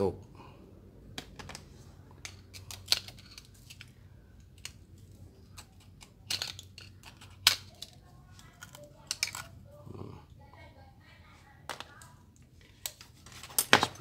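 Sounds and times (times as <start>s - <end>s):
screwdriver clicking and scraping metal: 2.2s - 9.6s.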